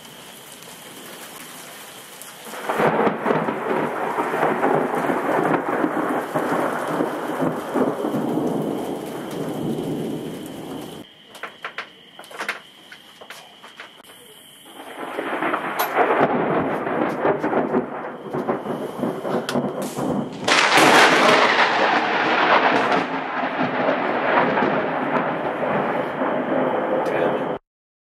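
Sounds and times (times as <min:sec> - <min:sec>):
thunder rolling: 0:00.0 - 0:12.7, 0:13.6 - 0:27.6
sharp thunder cracks: 0:02.5 - 0:11.1, 0:14.7 - 0:27.6.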